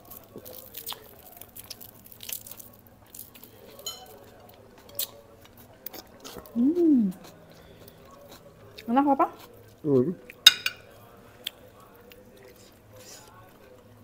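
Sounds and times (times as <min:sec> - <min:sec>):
cutlery clicking on plates: 0:03.8 - 0:04.2, 0:10.3 - 0:10.9.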